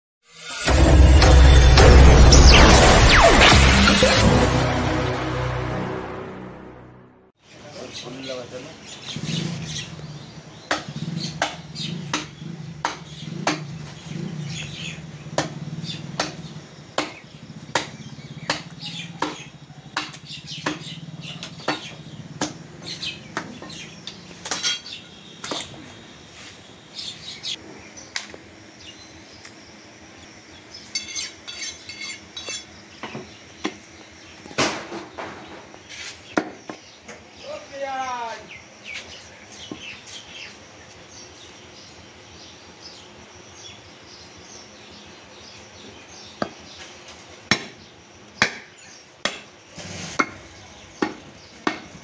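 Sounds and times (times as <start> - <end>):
birds chirping: 7.4 - 52.0
cleaver chopping meat on wood: 10.7 - 13.9, 15.3 - 23.8, 36.4 - 36.8, 46.4 - 46.7, 47.4 - 49.6, 50.2 - 52.0.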